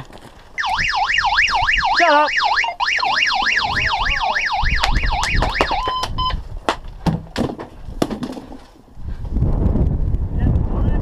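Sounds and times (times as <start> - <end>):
electronic alarm warbling: 0.6 - 6.4
short beeps: 0.6 - 6.4
sharp clicks: 4.6 - 6.3.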